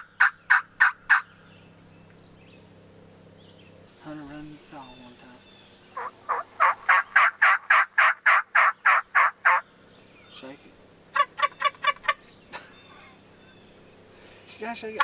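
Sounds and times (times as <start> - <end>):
gobble call rattle: 0.0 - 1.4, 5.9 - 9.7, 11.1 - 13.2
turkey call yelps: 0.0 - 1.4, 5.8 - 9.7, 11.1 - 13.8.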